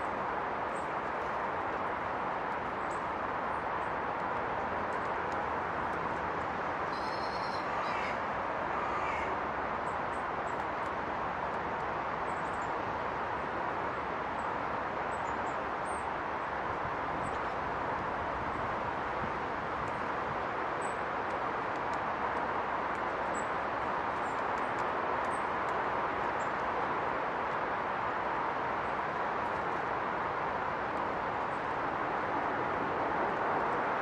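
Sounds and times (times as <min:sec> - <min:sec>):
bird calling: 0:06.9 - 0:08.2
river rushing: 0:07.6 - 0:34.0.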